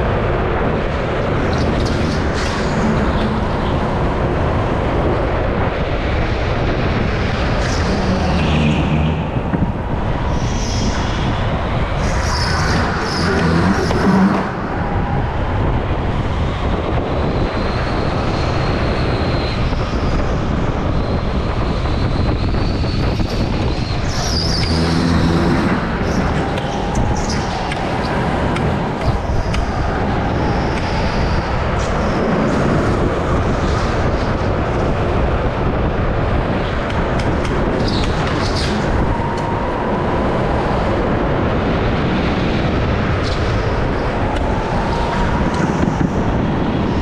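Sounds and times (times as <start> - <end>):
go-kart engine at speed: 6.6 - 15.4, 21.4 - 31.1.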